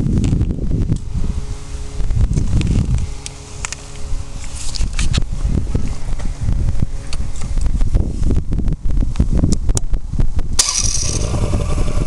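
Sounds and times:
motorcycle engine idling: 10.6 - 12.0.

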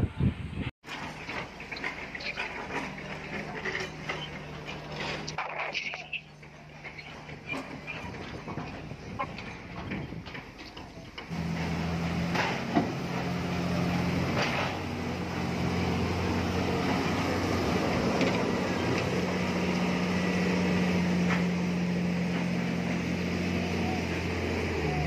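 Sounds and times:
diesel engine running: 0.8 - 25.0
metallic clanks: 0.9 - 11.4.

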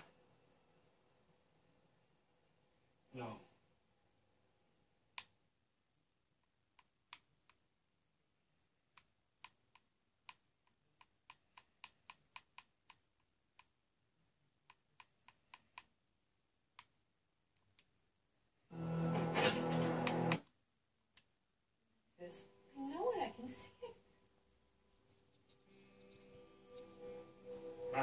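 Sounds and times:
tv show music and sound: 18.7 - 20.5, 22.2 - 28.0.

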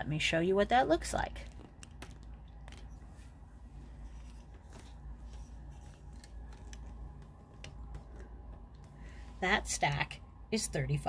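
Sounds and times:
low steady hum: 0.0 - 11.0
phone handling clicks and rustles: 4.0 - 8.9.

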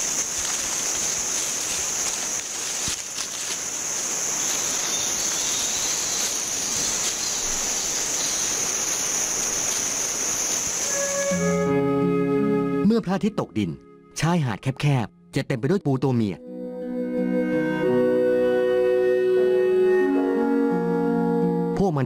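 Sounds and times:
insects chirring: 0.0 - 11.8
constant hiss: 0.0 - 12.2.

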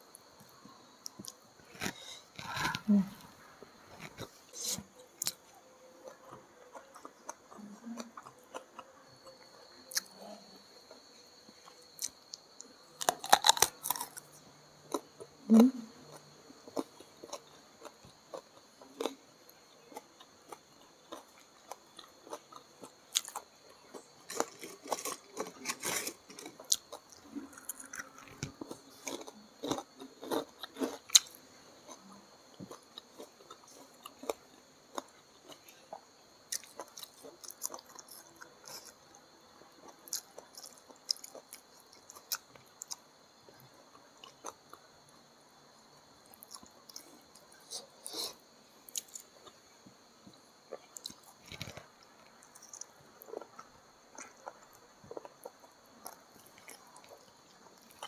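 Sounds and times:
crunching food: 0.0 - 45.3, 46.0 - 58.0
close chewing and biting: 6.0 - 10.1, 11.6 - 14.3, 19.9 - 39.2, 39.8 - 43.0.

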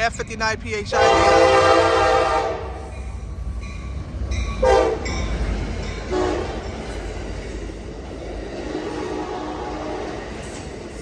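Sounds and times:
train rumbling past: 0.0 - 11.0
locomotive air horn blasts: 0.9 - 2.9, 4.6 - 5.1, 6.1 - 6.5, 8.9 - 10.1.

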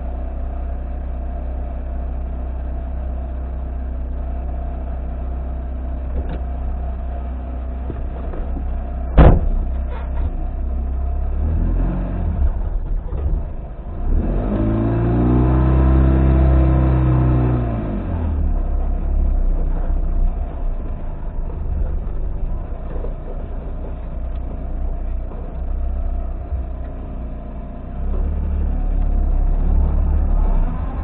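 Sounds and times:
car engine idling and revving: 0.0 - 31.0
sharp knock: 9.2 - 9.6.

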